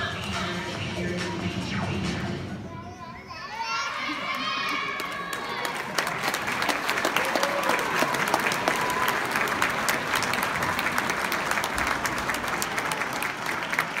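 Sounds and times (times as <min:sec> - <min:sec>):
audience applauding: 0:04.3 - 0:14.0.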